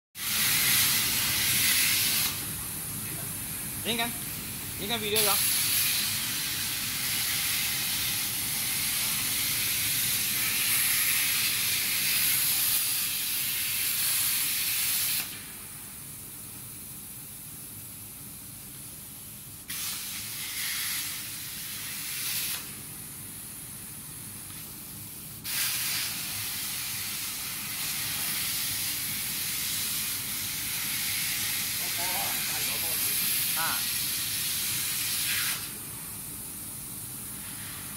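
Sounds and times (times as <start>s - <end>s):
plasma arc hissing: 0.2s - 15.6s, 19.4s - 24.6s, 25.4s - 35.8s, 36.9s - 37.9s.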